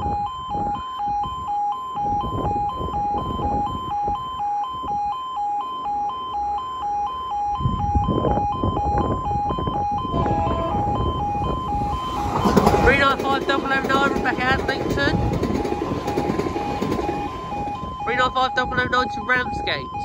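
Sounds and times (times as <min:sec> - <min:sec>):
level crossing alarm yelping: 0:00.0 - 0:20.0
rushing noise: 0:10.2 - 0:18.2.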